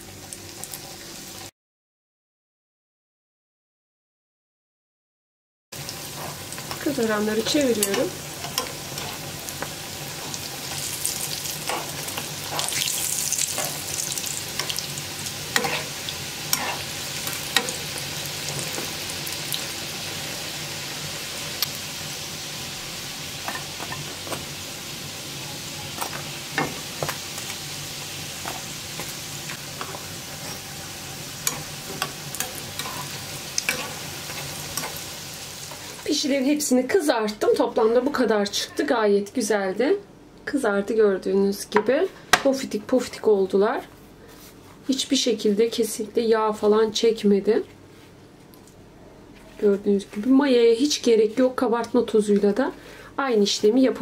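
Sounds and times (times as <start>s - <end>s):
dough sizzling in hot oil: 0.0s - 1.5s, 5.8s - 36.3s
metal tongs clicking: 31.4s - 33.9s.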